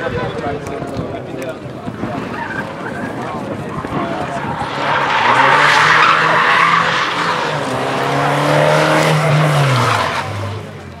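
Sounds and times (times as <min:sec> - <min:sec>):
race car engine at high revs: 0:03.6 - 0:11.0.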